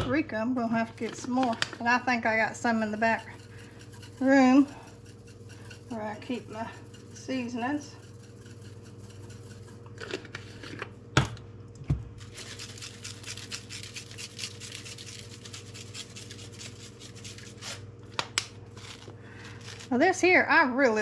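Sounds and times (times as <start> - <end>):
spice shaker rattling: 0.9 - 10.4, 12.2 - 17.8.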